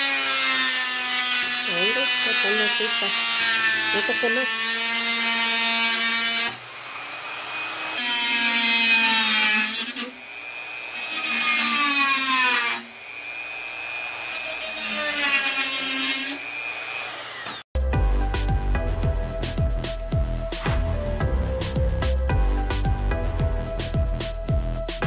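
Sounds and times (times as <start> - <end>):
cut-off wheel grinding steel rods: 0.0 - 17.6
rotary tool whining: 9.8 - 17.7
music with a steady beat: 17.8 - 25.0.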